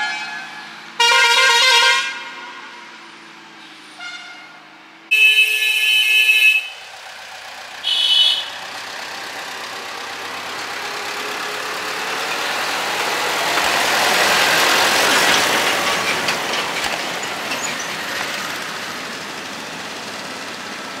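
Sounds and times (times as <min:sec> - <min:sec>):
diesel tractor engine: 0:00.0 - 0:21.0
motorcycle: 0:01.6 - 0:21.0
short vehicle horn toot: 0:04.0 - 0:06.8, 0:07.8 - 0:08.6.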